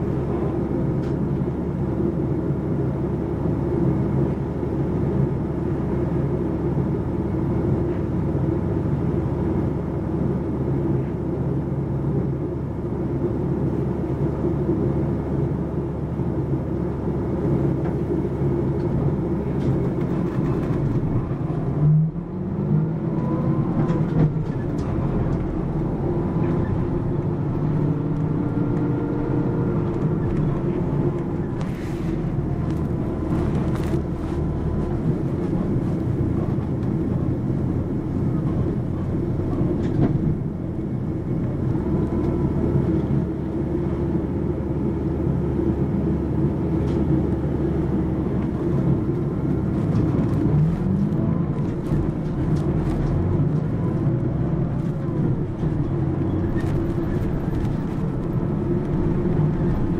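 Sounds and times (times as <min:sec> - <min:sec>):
bus diesel engine drone: 0:00.0 - 0:59.9
road rumble: 0:00.0 - 0:59.9.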